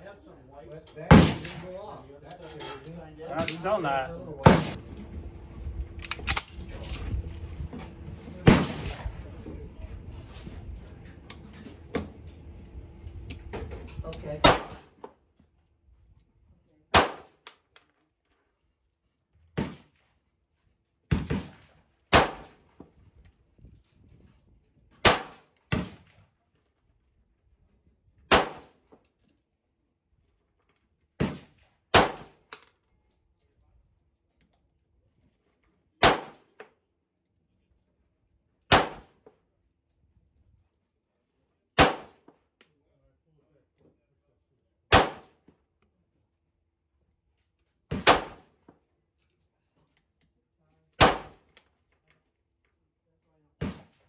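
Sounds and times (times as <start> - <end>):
pistol shots: 1.1 - 1.7, 4.4 - 4.8, 14.4 - 14.9, 16.9 - 17.4, 21.1 - 22.5, 25.0 - 26.0, 28.3 - 28.7, 31.2 - 32.4, 36.0 - 36.5, 38.7 - 39.2, 41.8 - 42.2, 44.9 - 45.4, 47.9 - 48.5, 51.0 - 51.4
handgun shots: 28.3 - 28.7, 36.0 - 36.4, 38.7 - 39.1, 41.8 - 42.2, 44.9 - 45.3, 47.9 - 48.4, 51.0 - 51.4.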